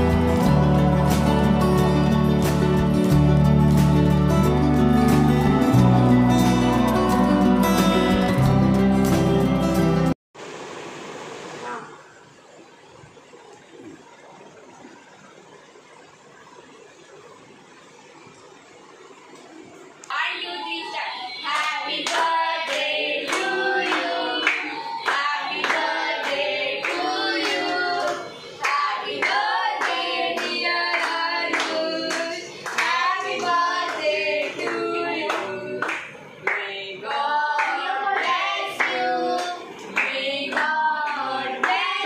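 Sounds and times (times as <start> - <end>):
group of voices singing: 0.0 - 4.2, 20.4 - 42.0
hand clapping: 2.3 - 4.1, 21.5 - 34.0, 35.3 - 36.7, 37.6 - 41.9.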